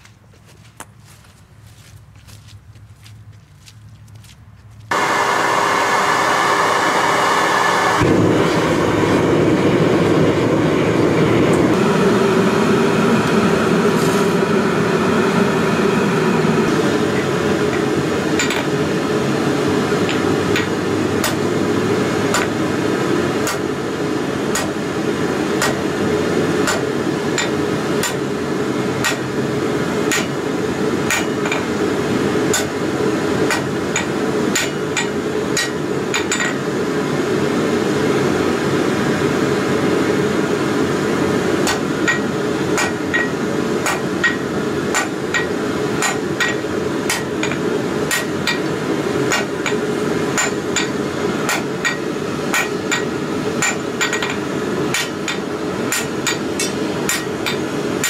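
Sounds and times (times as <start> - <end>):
forge rushing noise: 4.9 - 34.7
hammer striking metal on anvil: 23.4 - 23.7, 24.5 - 24.8, 26.6 - 28.3, 29.0 - 29.3, 30.1 - 30.4, 31.1 - 31.7, 32.5 - 32.8, 33.5 - 36.6, 41.6 - 48.7, 49.3 - 49.8, 50.4 - 57.6.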